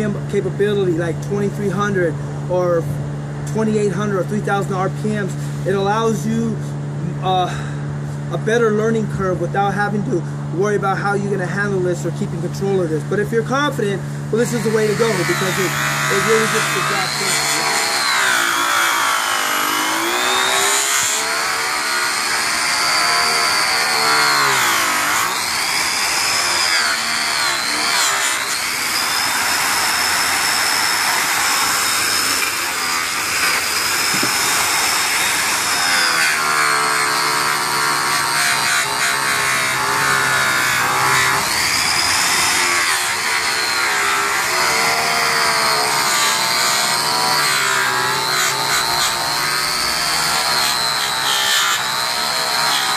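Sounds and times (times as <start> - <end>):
electric polisher whining: 14.4 - 52.9.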